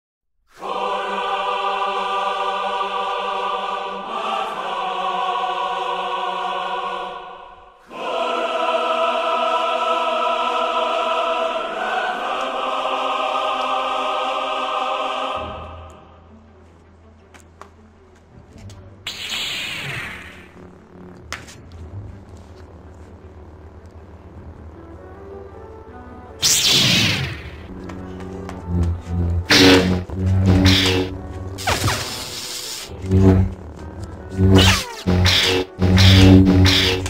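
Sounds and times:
choir singing long held chords: 0.5 - 16.3, 27.4 - 37.0
faint low hum: 20.4 - 26.4, 27.4 - 31.8, 32.9 - 37.0.

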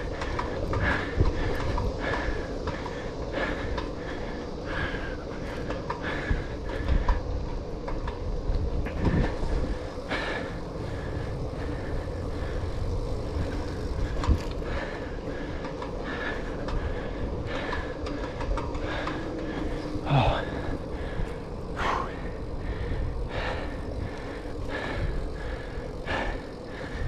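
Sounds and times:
bicycle tyres rolling on asphalt: 0.0 - 27.0
bike knocking and rattling: 0.0 - 27.0.

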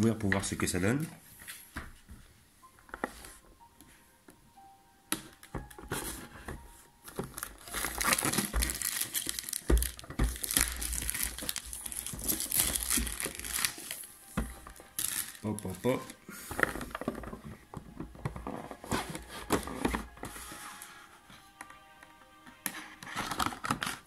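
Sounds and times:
plastic wrap crinkling: 5.6 - 20.8, 23.0 - 24.0.

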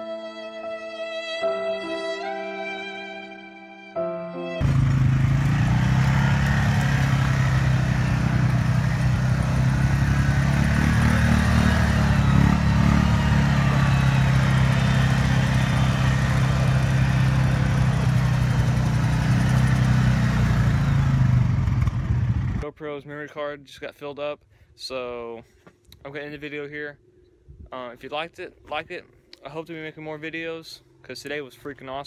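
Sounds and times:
quad bike engine running: 4.6 - 22.6.

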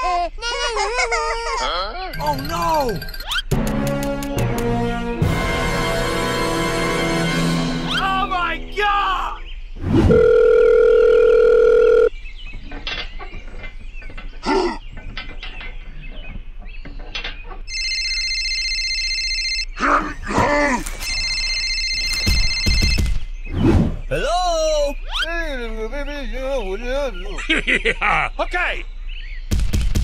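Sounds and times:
cartoon voice squeaks: 1.5 - 3.5, 24.8 - 25.4
telephone ringing: 2.1 - 3.5, 10.1 - 12.1, 17.7 - 19.8, 21.0 - 23.2.

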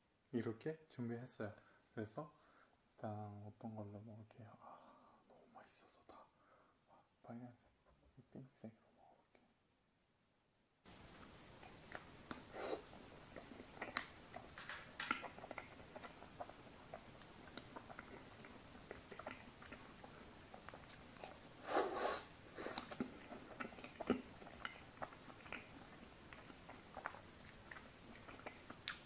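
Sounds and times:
wet chewing: 10.9 - 29.0
lip smacks: 11.1 - 29.0
bites cracking chocolate shell: 13.4 - 16.3.

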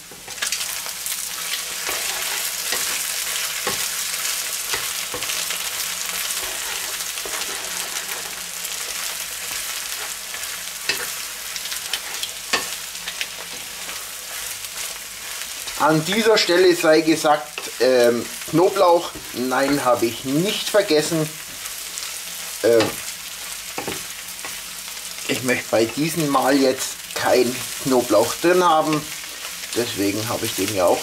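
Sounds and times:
food sizzling in a frying pan: 0.0 - 31.0
wooden spatula scraping: 1.3 - 17.8.

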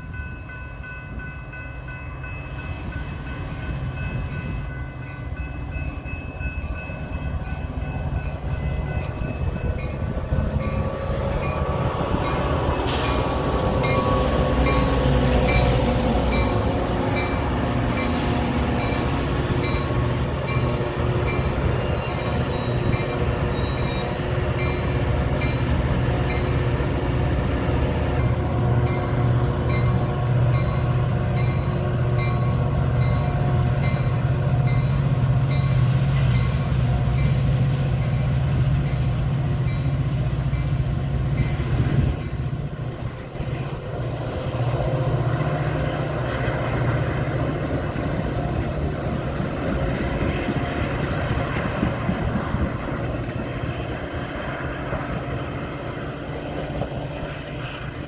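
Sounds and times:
train passing rumble: 0.0 - 58.0.

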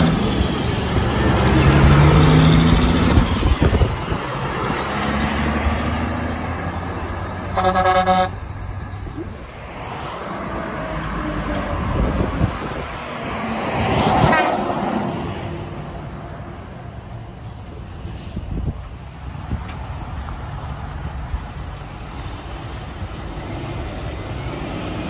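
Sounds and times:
road traffic noise: 0.0 - 25.0
air horn blast: 7.5 - 8.4.

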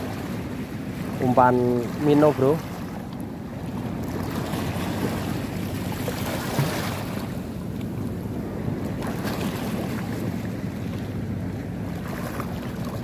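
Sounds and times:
small sea waves washing: 0.0 - 13.0.

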